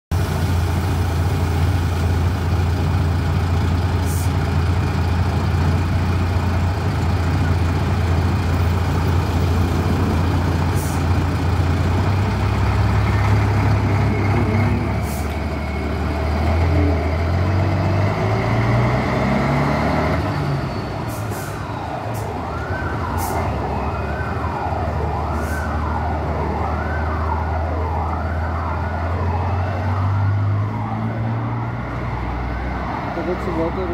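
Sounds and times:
bus diesel engine idling and revving: 0.1s - 33.9s
wailing siren: 7.4s - 33.9s.

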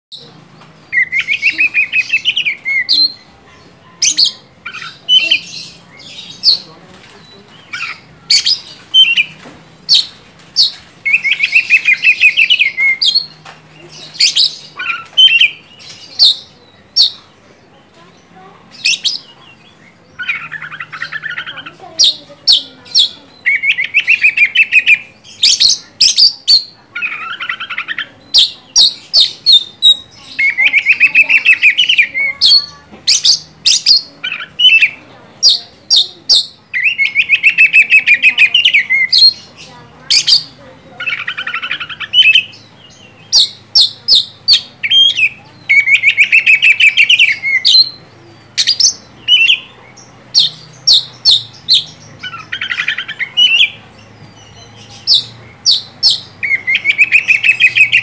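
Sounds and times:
bird song: 0.1s - 58.0s.

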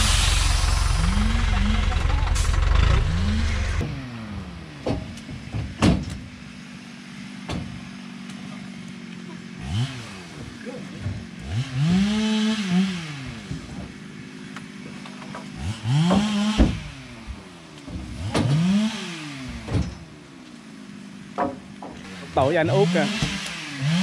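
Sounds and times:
small engine revving: 0.0s - 4.8s, 8.3s - 20.2s, 22.0s - 24.0s
logs dropping with wooden knocks: 4.8s - 6.3s, 14.6s - 18.6s, 21.3s - 22.1s.

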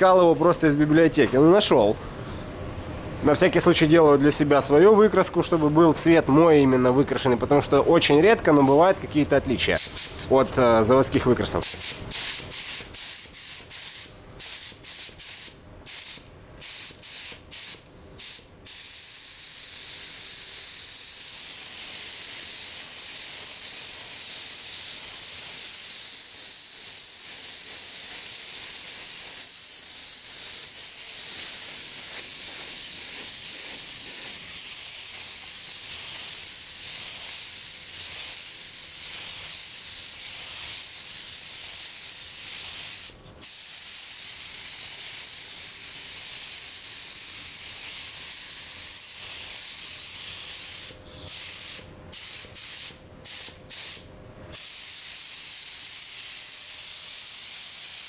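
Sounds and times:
spray gun hissing: 11.6s - 54.0s, 54.6s - 58.0s.

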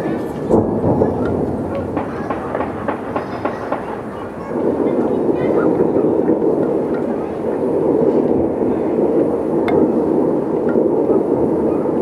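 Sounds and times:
distant fireworks crackling: 0.0s - 12.0s
sharp firework crack: 0.2s - 8.7s.

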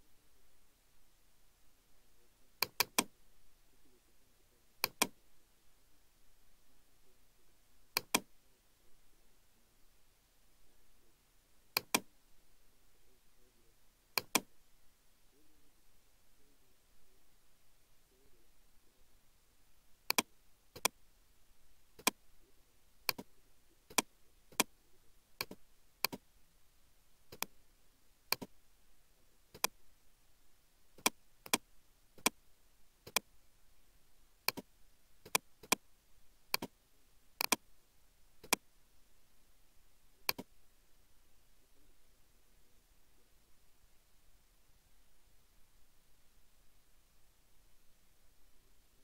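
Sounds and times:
computer mouse button clicking: 2.6s - 3.1s, 4.8s - 5.2s, 8.0s - 8.3s, 11.8s - 12.1s, 14.2s - 14.5s, 20.1s - 21.0s, 23.1s - 23.3s, 25.4s - 26.2s, 27.3s - 27.5s, 28.3s - 28.5s, 29.6s - 29.8s, 34.5s - 34.7s, 36.5s - 36.7s, 37.4s - 37.6s, 38.4s - 38.6s, 40.3s - 40.5s.

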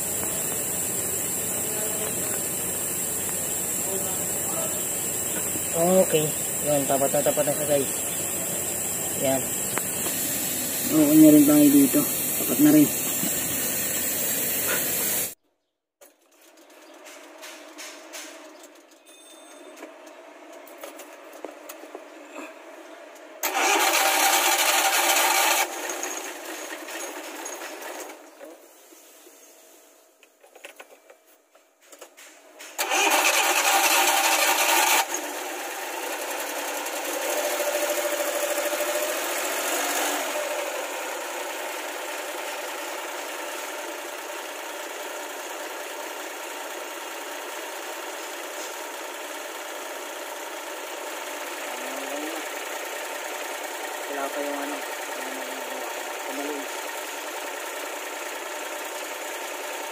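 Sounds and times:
engine running steadily: 0.0s - 15.4s, 32.8s - 59.9s
engine starter cranking: 23.4s - 28.3s, 32.6s - 43.2s.

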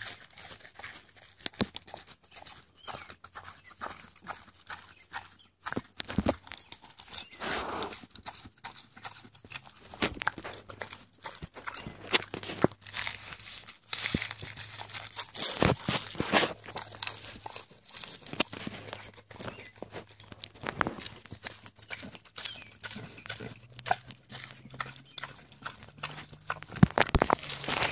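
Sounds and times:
pig chewing lettuce: 0.0s - 27.9s
pig smacking lips: 0.0s - 27.9s.

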